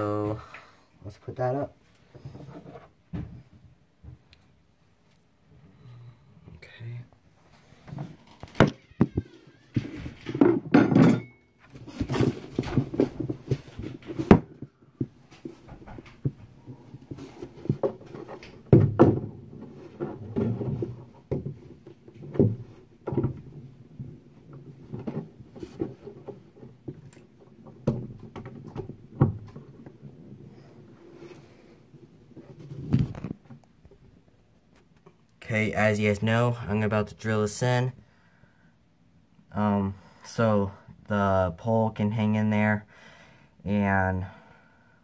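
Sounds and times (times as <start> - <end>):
hardware and wood knocking: 7.9 - 30.4.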